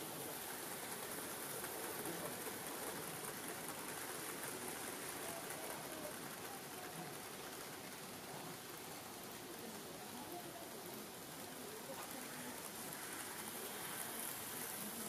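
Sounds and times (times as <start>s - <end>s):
model trains rattling on track: 0.0s - 15.0s
room background noise: 0.0s - 15.0s.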